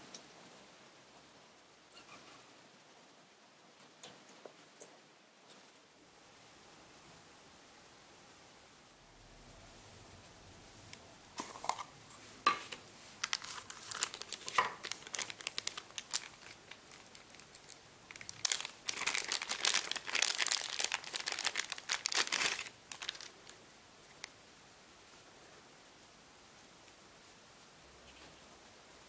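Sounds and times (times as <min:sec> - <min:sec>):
plastic wrapper crinkling: 0:12.5 - 0:24.3.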